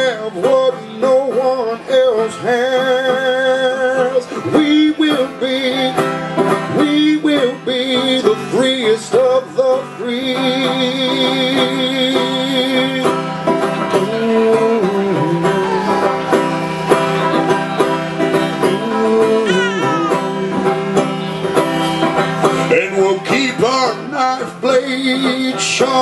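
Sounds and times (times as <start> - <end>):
banjo picked rhythm: 0.0 - 26.0
swooping vocal cry: 15.4 - 17.7, 19.4 - 20.4.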